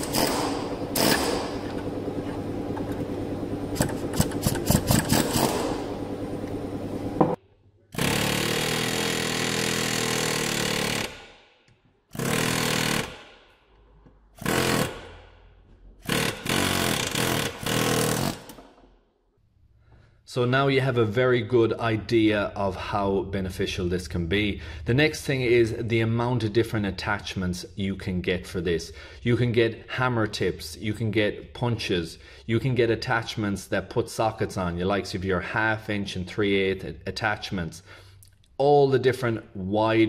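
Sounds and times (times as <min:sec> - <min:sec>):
air hammer hammering: 0:00.0 - 0:06.2.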